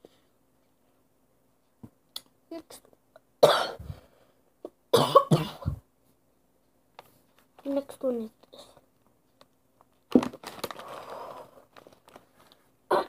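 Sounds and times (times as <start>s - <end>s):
girl coughing: 3.4s - 3.9s, 4.9s - 5.8s.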